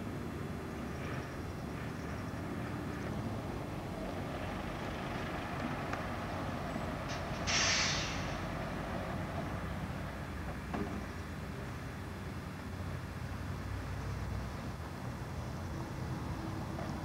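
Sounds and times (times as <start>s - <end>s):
buses idling: 0.4s - 17.0s
compressed air hiss: 7.1s - 8.5s.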